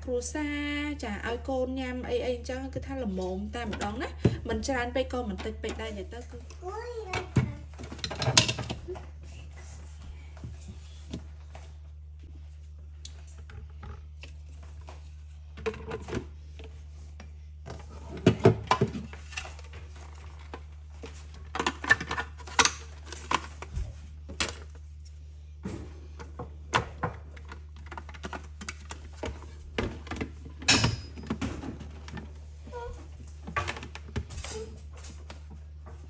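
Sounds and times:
steady low hum: 0.0s - 36.0s
plastic parts clicking and rattling: 7.8s - 8.8s, 26.8s - 32.3s.

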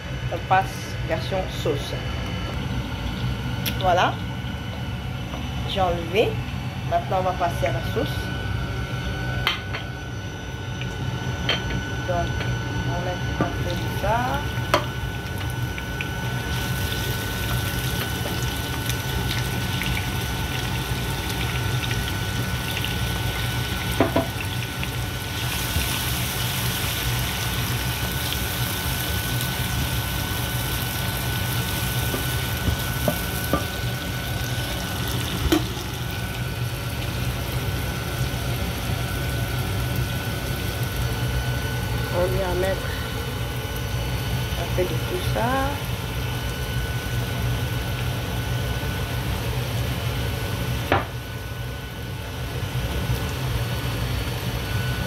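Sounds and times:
steady low hum: 0.0s - 55.0s
peppers sizzling in hot oil: 13.5s - 48.6s.

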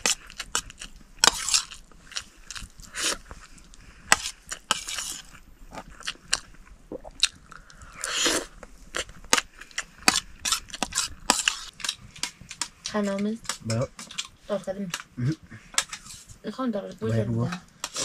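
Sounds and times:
rustling scrape: 0.0s - 5.5s, 9.8s - 12.6s, 15.8s - 16.4s
chewing and crunching: 0.0s - 16.3s.

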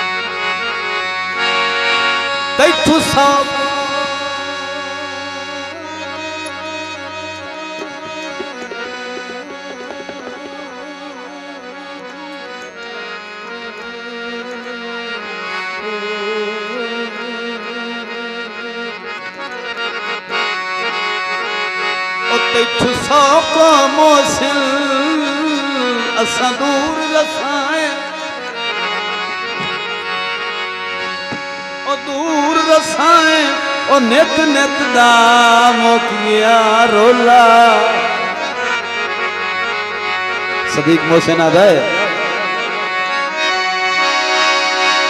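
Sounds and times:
harmonium melody: 0.0s - 45.0s
hand drum strokes: 7.6s - 11.2s.

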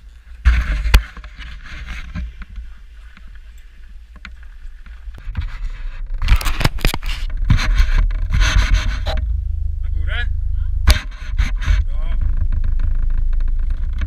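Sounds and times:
sled runners scraping over snow: 0.0s - 9.2s
loud bump: 7.4s - 13.6s.

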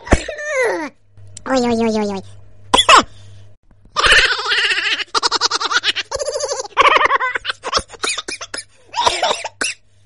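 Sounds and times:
person laughing loudly: 4.0s - 8.4s.

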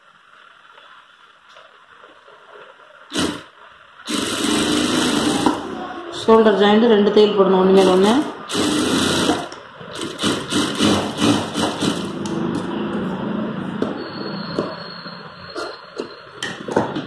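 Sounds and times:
sewing machine stitching: 3.1s - 3.5s, 4.1s - 5.6s, 7.8s - 12.3s.

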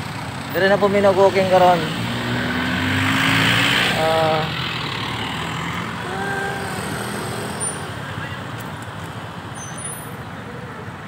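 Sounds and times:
vehicle engines idling: 0.0s - 11.0s
vehicle passing: 0.6s - 8.7s.

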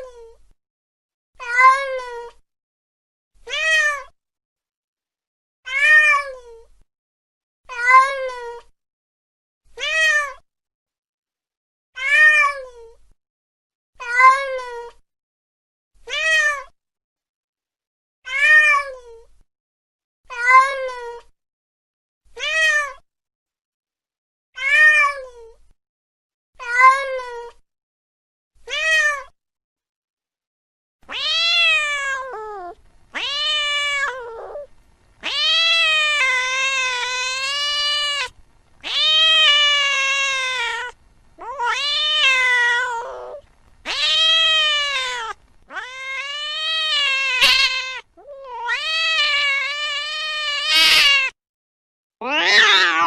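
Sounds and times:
cat meowing: 5.7s - 6.4s, 12.0s - 12.6s, 24.6s - 25.2s, 31.1s - 51.4s, 52.2s - 53.0s.

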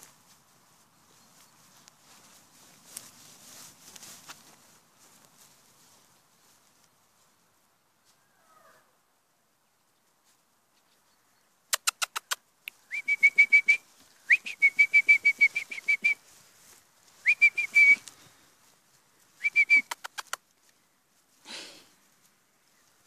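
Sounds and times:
quick clicks: 11.7s - 12.8s, 19.6s - 20.5s
person whistling short high notes: 12.9s - 16.2s, 17.2s - 18.0s, 19.4s - 20.2s.

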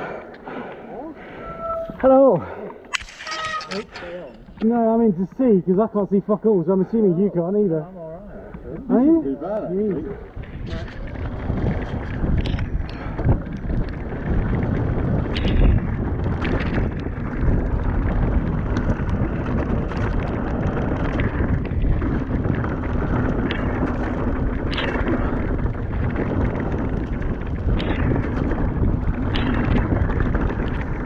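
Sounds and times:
bike rattling on stones: 2.9s - 5.4s, 9.7s - 31.0s
wind rushing over microphone: 8.3s - 31.0s
tyres rumbling over gravel: 10.4s - 31.0s.

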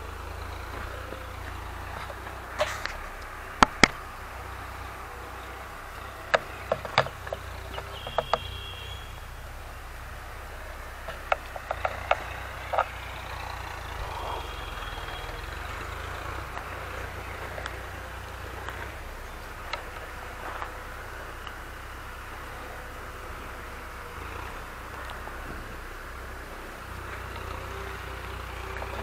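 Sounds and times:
distant tractor engine rumble: 0.0s - 29.0s
sharp clicks: 2.1s - 4.0s.

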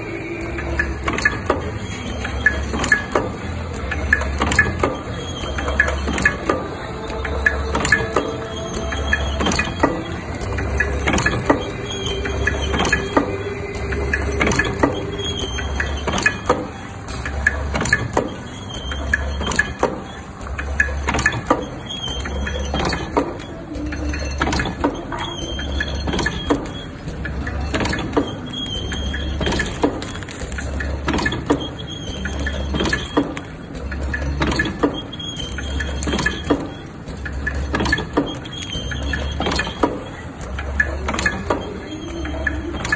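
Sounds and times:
machine sharp clicks: 0.1s - 42.9s
short high squeaks: 14.2s - 20.4s, 21.2s - 30.3s, 31.2s - 33.3s, 34.2s - 40.3s.

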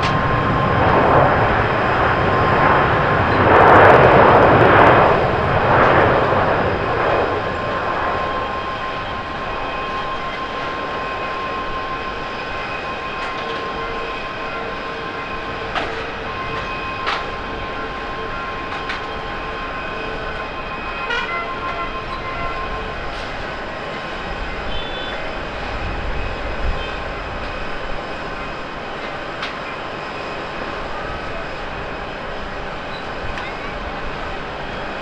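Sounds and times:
distant jet engines rushing: 0.0s - 35.0s.

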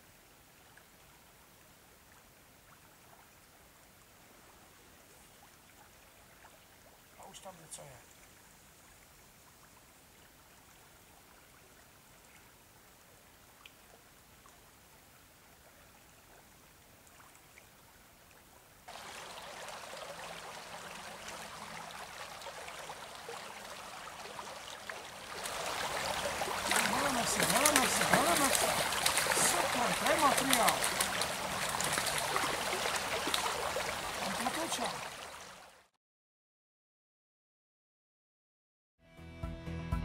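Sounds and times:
shallow stream flowing: 0.0s - 36.0s.

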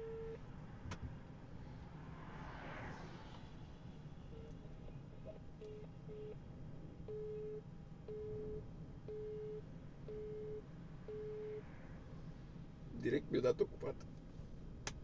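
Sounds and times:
telephone busy signal beeps: 0.0s - 0.4s, 7.1s - 11.6s.

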